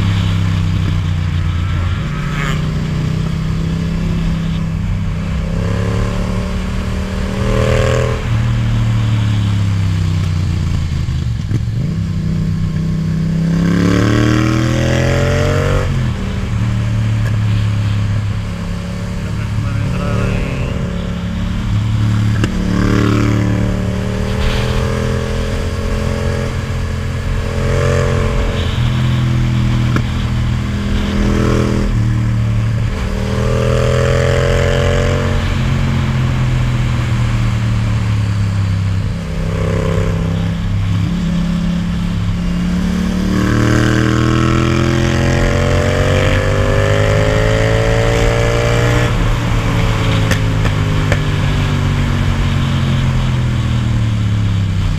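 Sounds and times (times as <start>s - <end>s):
motorcycle engine accelerating: 0.0s - 54.9s
wind rushing: 13.4s - 52.9s.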